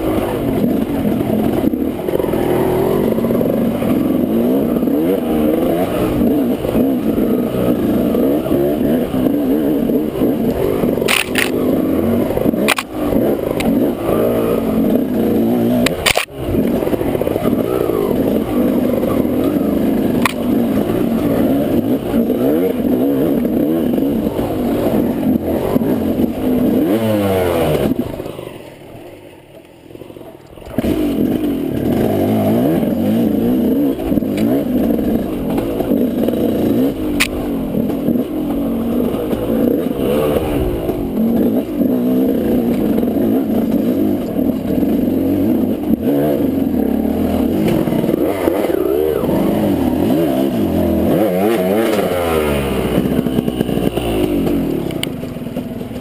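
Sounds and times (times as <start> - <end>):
dirt bike engine revving: 0.0 - 56.0.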